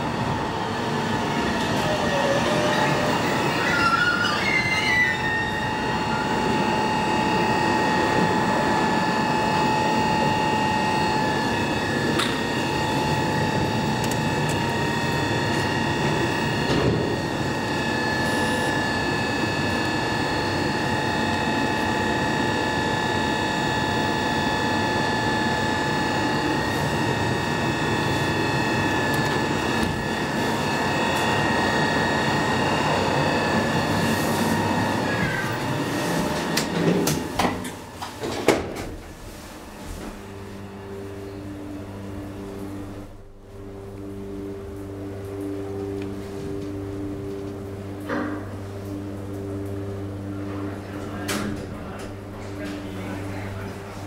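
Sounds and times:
steady high whine: 0:00.0 - 0:54.0
train motor whine: 0:00.0 - 0:54.0
train wheel squeal: 0:02.0 - 0:06.7.

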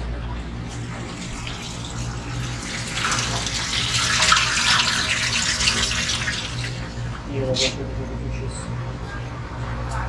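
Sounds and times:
steady low hum: 0:00.0 - 0:10.0
water splashing into tank: 0:00.9 - 0:07.0.

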